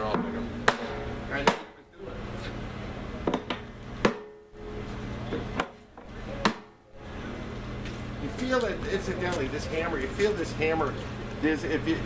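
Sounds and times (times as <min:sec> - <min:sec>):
hammer striking metal hoop: 0:00.1 - 0:01.8, 0:03.3 - 0:04.8.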